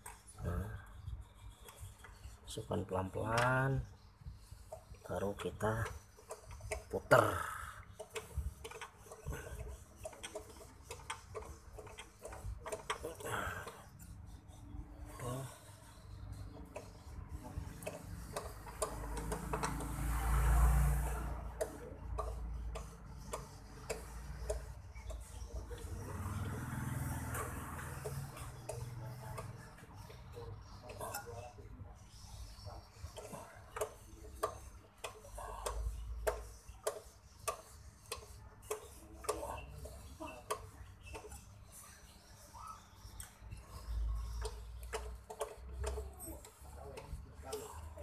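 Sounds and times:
tap clicking while cutting threads: 0:17.8 - 0:20.0, 0:33.2 - 0:39.4.

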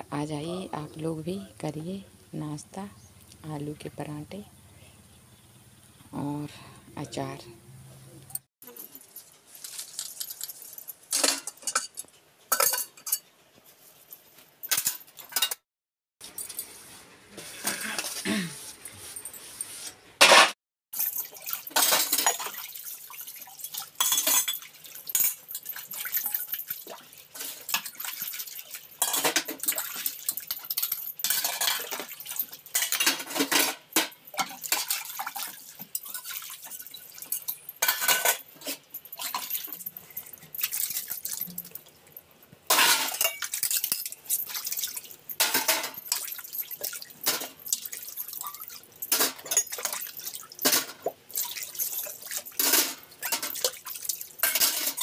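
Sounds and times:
metal dishes clinking: 0:08.7 - 0:13.3, 0:14.6 - 0:15.6, 0:20.2 - 0:22.6, 0:23.6 - 0:26.6, 0:29.0 - 0:41.9, 0:42.7 - 0:55.0
water splashing and pouring: 0:21.0 - 0:55.0.

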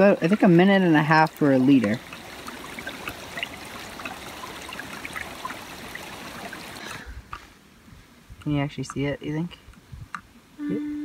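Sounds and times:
water sloshing in plastic bottle: 0:00.0 - 0:07.4.

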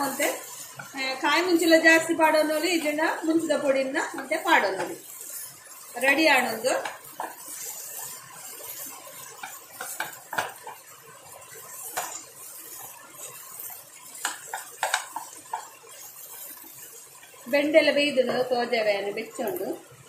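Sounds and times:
spatula scraping frying pan: 0:00.0 - 0:18.7
spatula knocking against pan: 0:09.4 - 0:10.8, 0:14.2 - 0:15.7.

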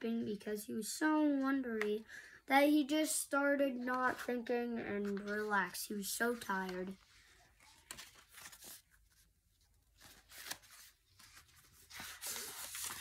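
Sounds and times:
book pages rustling: 0:05.0 - 0:13.0.

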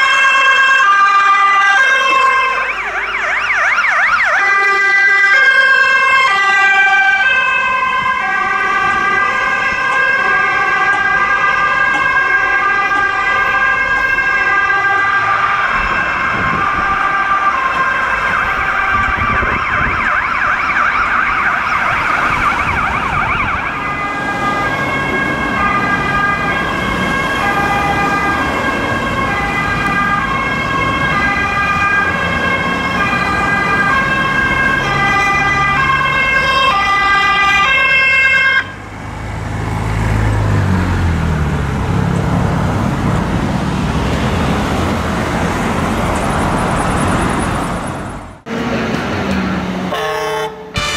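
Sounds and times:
city traffic: 0:00.0 - 0:50.9
emergency vehicle siren: 0:00.0 - 0:50.9
vehicle engine pulling away: 0:38.8 - 0:49.9.

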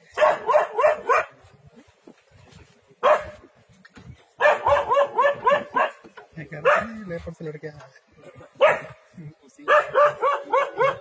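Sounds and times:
dog barking: 0:00.1 - 0:01.4, 0:03.0 - 0:03.5, 0:04.4 - 0:07.0, 0:08.6 - 0:09.0, 0:09.6 - 0:11.0.

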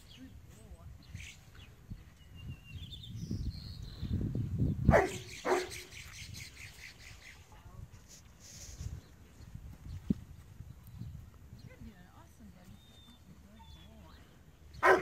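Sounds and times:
dog barking: 0:04.9 - 0:05.8.

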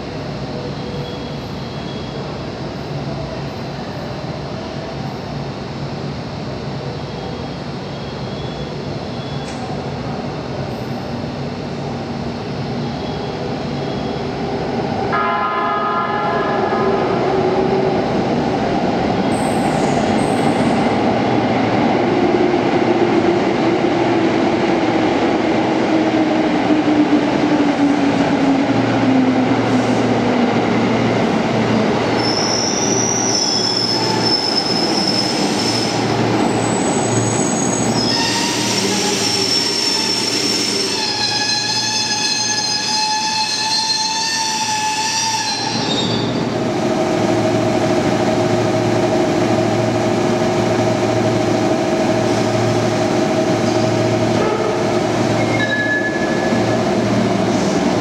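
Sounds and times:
electric trains in tunnel: 0:00.0 - 0:58.0
high ringing wheel squeal: 0:32.2 - 0:46.4, 0:55.4 - 0:56.7.

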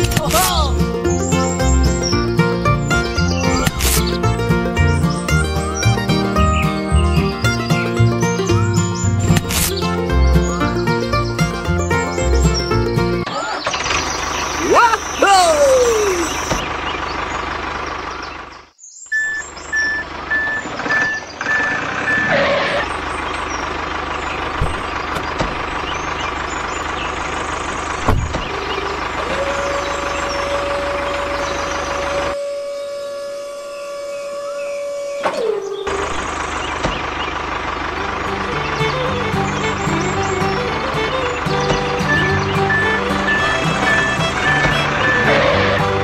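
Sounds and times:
truck engine running: 0:00.0 - 0:46.0
hydraulic whine: 0:15.9 - 0:17.6, 0:19.2 - 0:46.0
reversing beeps: 0:19.1 - 0:22.9, 0:42.1 - 0:45.4.

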